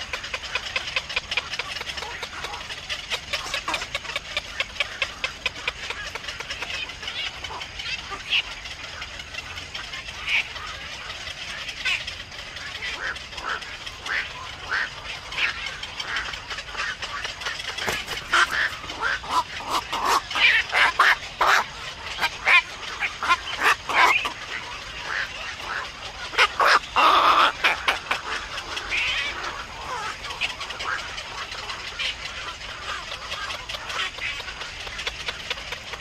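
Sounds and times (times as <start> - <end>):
night herons calling: 0.0 - 36.0.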